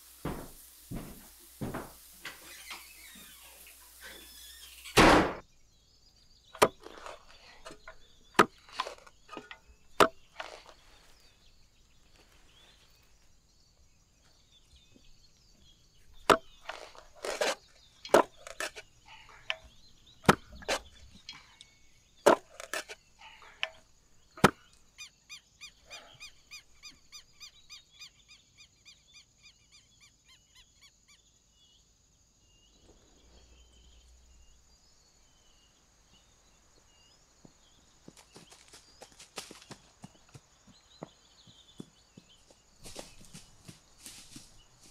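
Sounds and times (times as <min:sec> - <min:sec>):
digging tool striking hard ground: 0:05.0 - 0:05.4, 0:06.6 - 0:11.3, 0:16.2 - 0:21.1, 0:22.2 - 0:23.8, 0:24.4 - 0:24.7.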